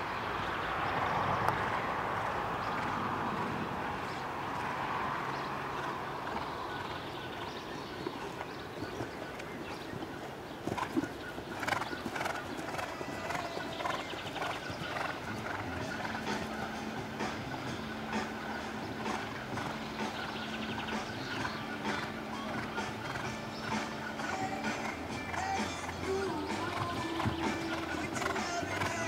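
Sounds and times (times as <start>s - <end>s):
horse hoofbeats on turf: 7.5s - 29.0s.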